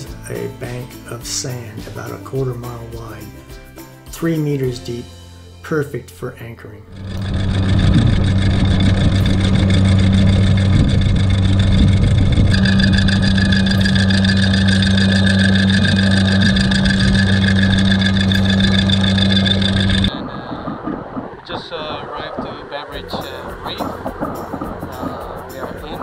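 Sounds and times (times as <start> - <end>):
anchor windlass motor whining: 6.8 - 26.0.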